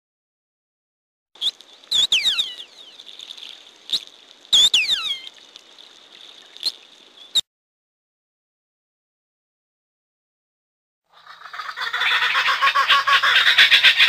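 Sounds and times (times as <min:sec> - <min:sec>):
orca whistling calls: 0:01.4 - 0:03.0, 0:03.9 - 0:05.3
steady hiss: 0:01.4 - 0:07.4.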